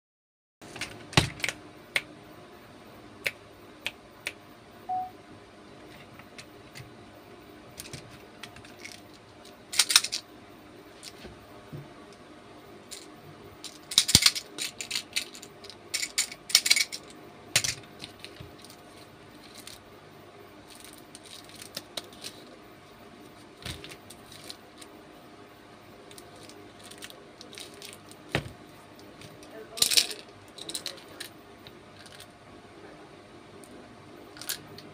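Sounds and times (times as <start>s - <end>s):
candy rattling in plastic toy: 8.7s - 10.2s, 12.9s - 18.8s, 20.7s - 22.5s, 26.1s - 28.1s, 29.8s - 31.3s.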